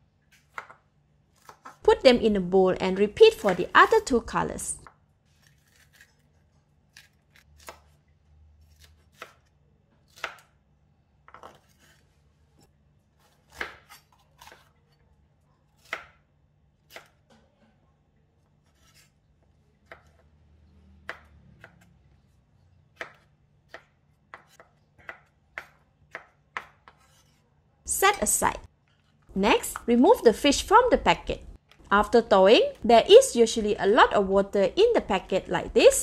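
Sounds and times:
knife chopping on wooden board: 19.8s - 20.2s, 23.0s - 27.3s.

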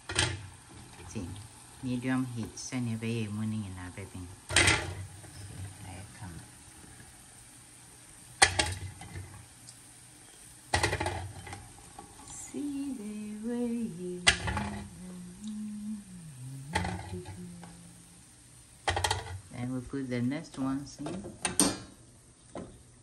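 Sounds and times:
person humming: 12.3s - 18.2s.

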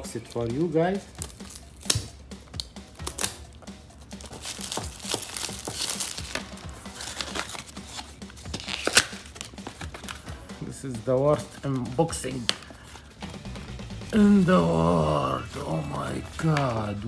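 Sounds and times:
plastic packaging crinkling: 4.1s - 10.2s.

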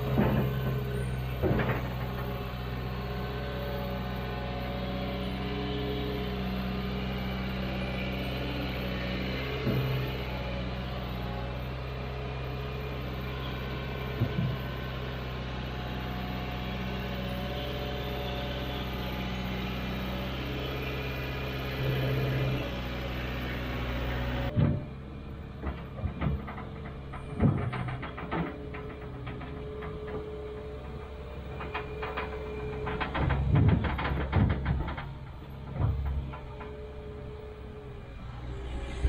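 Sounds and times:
diesel engine running: 0.0s - 39.0s
sharp knocks and clicks: 25.6s - 30.3s, 30.9s - 36.8s.

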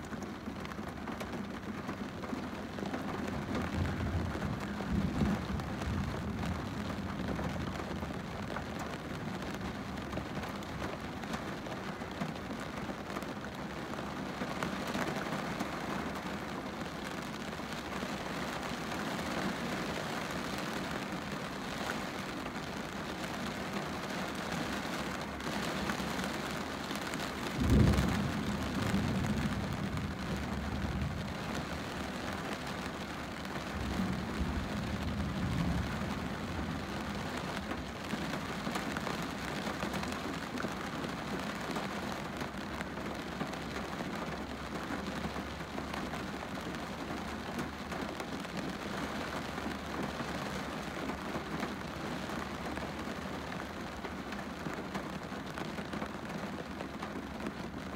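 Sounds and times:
rain on a car windscreen: 0.0s - 57.9s
thunder rumbling: 3.3s - 8.6s, 27.4s - 40.0s.

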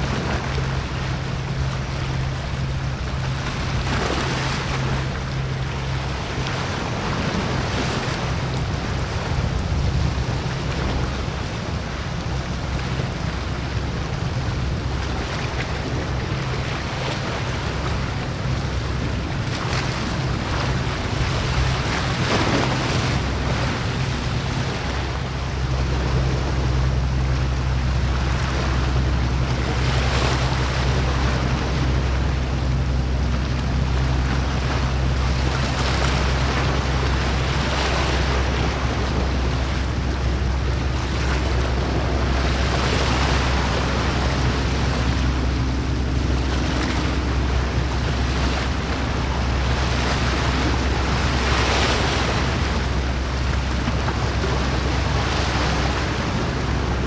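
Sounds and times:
boat engine drone: 0.0s - 57.0s
water rushing: 0.0s - 57.0s.

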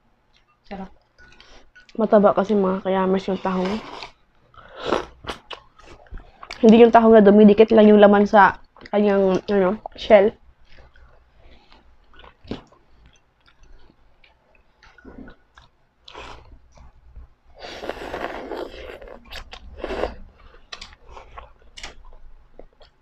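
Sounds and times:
mouth clicks and chewing: 3.9s - 6.7s, 10.6s - 17.2s, 17.8s - 23.0s
slurping noodles: 17.6s - 20.2s.

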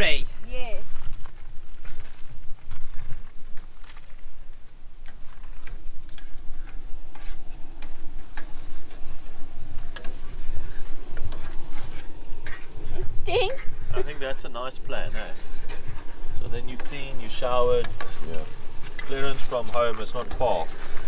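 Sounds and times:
faint high whine: 0.0s - 21.0s.

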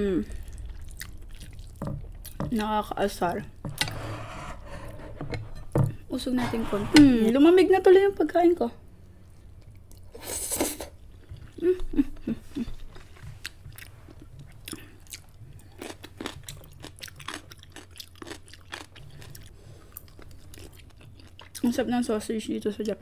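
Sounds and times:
wet chewing and mouth clicks: 0.4s - 2.4s, 12.8s - 21.7s.

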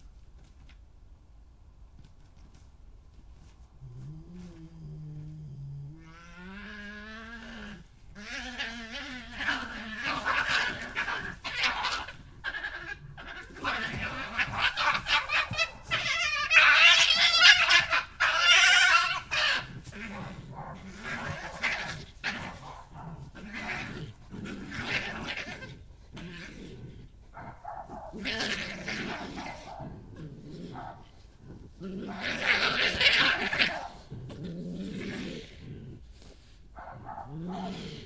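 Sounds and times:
badger growling: 3.8s - 38.0s
badgers screaming and squealing: 6.0s - 26.7s, 27.3s - 34.2s.

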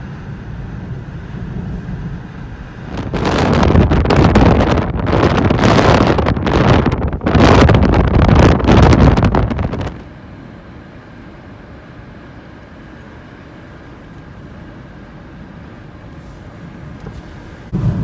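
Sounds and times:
wind buffeting microphone: 0.0s - 10.1s, 16.9s - 18.0s
car road noise: 0.0s - 18.0s
low rumble of car: 0.0s - 18.0s.

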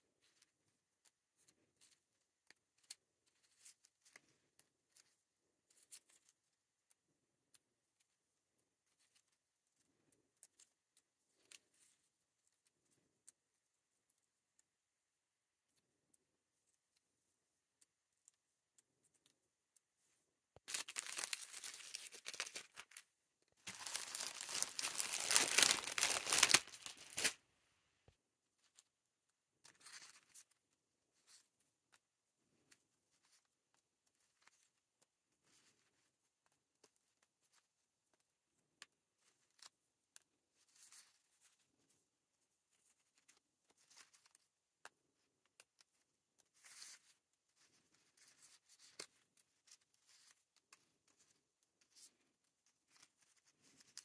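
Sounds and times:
plastic bag crinkling: 20.6s - 23.0s, 23.6s - 27.4s.

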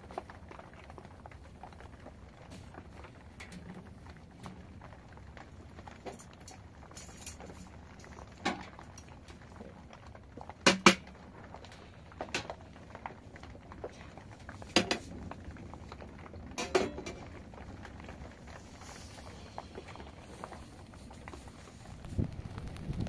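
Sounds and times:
metal clanks and scrapes: 16.6s - 17.2s.

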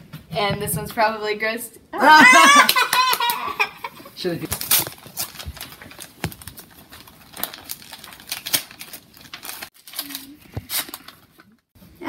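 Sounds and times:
wrapping paper crinkling: 4.4s - 11.7s.

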